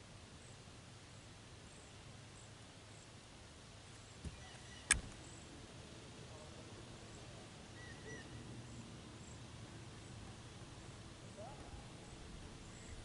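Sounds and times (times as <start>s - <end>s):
faint outdoor ambience: 0.0s - 13.0s
sharp click: 4.8s - 5.2s.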